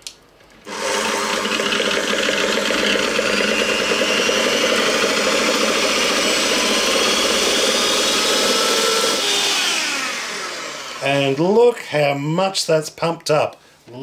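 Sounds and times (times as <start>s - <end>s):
electric mixer motor whine: 0.6s - 11.4s.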